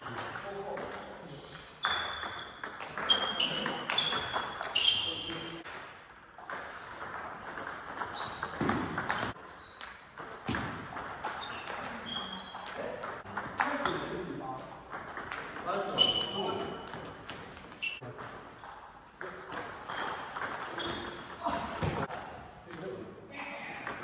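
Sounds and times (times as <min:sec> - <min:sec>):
table tennis ball pings: 0:01.8 - 0:05.6, 0:06.5 - 0:14.0, 0:19.6 - 0:22.3.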